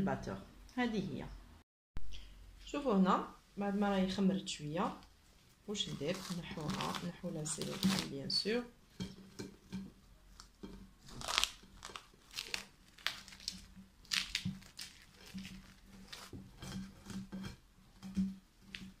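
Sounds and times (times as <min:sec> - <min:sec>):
plastic cling film crinkling: 0:05.7 - 0:08.4, 0:10.3 - 0:16.4.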